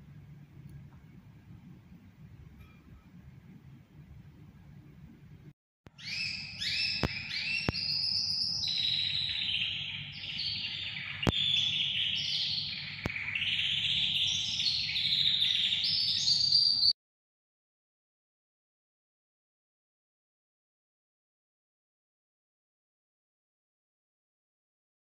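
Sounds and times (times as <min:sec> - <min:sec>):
songbird singing trills: 0:05.9 - 0:16.9.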